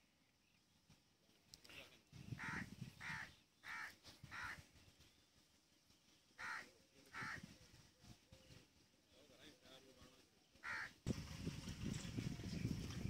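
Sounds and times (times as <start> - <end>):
crow cawing: 2.4 - 4.6, 6.4 - 7.5, 10.6 - 11.0.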